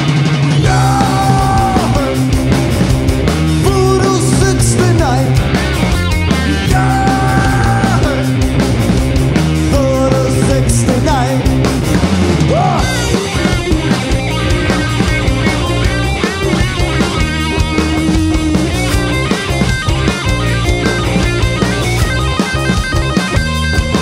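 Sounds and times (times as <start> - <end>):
rock band playing: 0.0 - 24.0
shouted vocal: 0.6 - 2.2, 6.5 - 8.4, 12.4 - 13.2.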